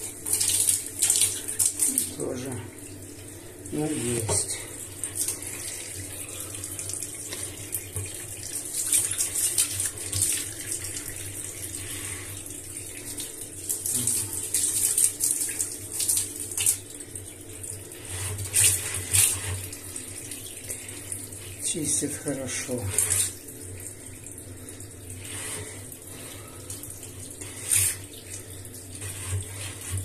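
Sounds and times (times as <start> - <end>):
tap water running into drain: 0.0 - 30.0.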